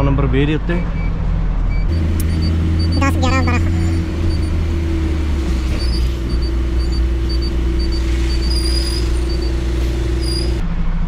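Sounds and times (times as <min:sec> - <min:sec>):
diesel truck engine running: 0:00.0 - 0:10.7
faint high reversing beeps: 0:05.7 - 0:10.6.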